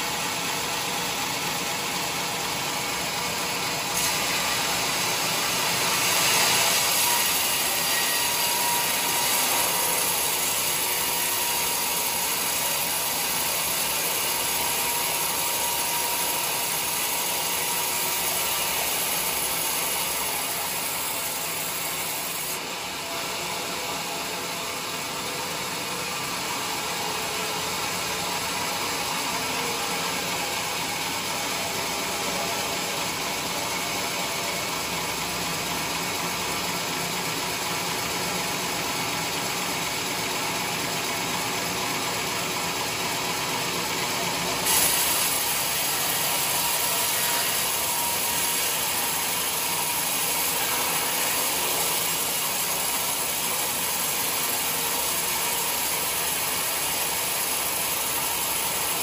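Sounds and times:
band saw cutting log: 3.8 - 34.5, 44.6 - 59.0.

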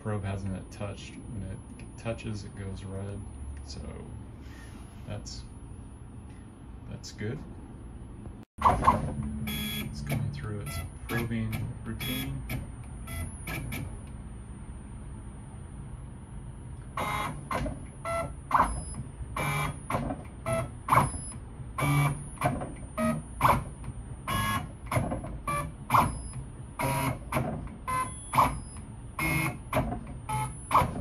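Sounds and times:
stepper motors whining: 16.8 - 31.0.

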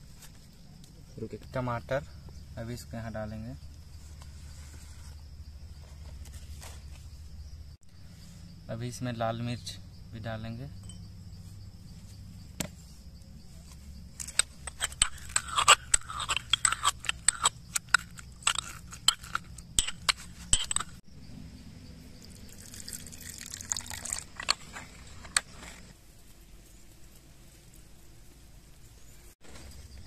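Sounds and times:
pestle grinding: 14.2 - 21.0.

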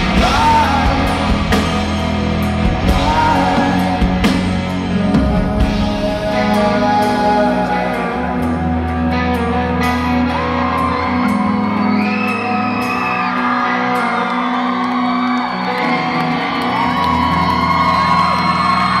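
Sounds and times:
electric guitar sustained chords: 0.0 - 19.0
live rock band: 0.0 - 19.0
audience whooping and whistling: 10.4 - 19.0.

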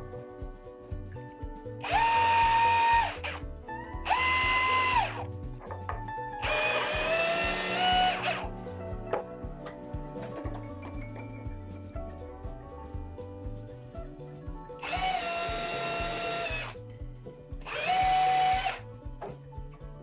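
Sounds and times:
background music: 0.0 - 20.0
drill boring through wood: 1.8 - 3.4, 4.0 - 5.3, 6.4 - 8.5, 14.8 - 16.8, 17.6 - 18.8.

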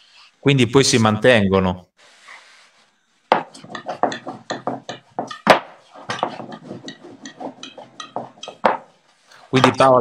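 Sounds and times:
rolling pin knocking on wooden board: 3.3 - 9.0.

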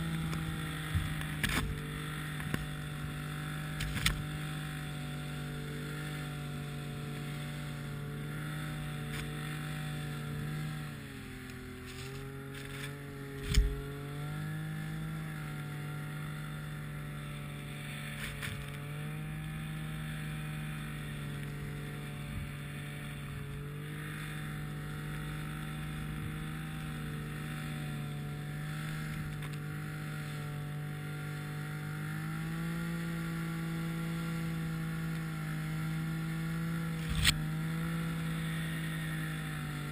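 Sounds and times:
snowmobile engine droning: 0.0 - 39.9
sharp thump: 13.4 - 13.8.

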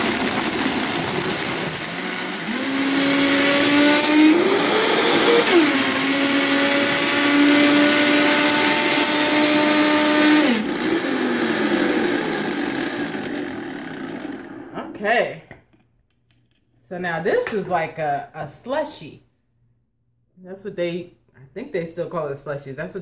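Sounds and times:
blender blending ice: 0.0 - 14.7.

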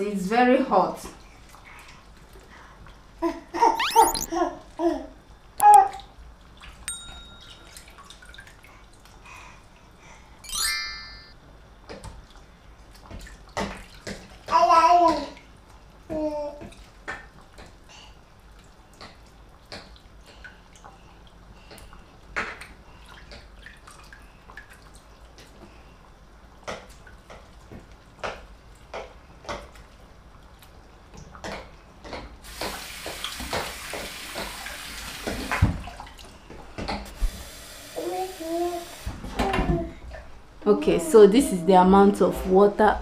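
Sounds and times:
metal bowl clinking in sink: 6.9 - 8.2
tap running water: 32.1 - 39.8.

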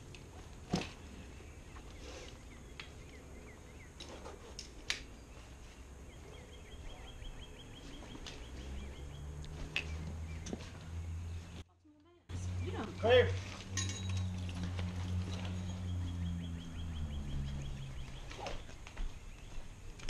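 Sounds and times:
birds chirping: 0.4 - 11.7, 12.3 - 20.0
low handling rumble: 12.3 - 20.0
gear buckles clicking and rustling: 13.4 - 15.9.

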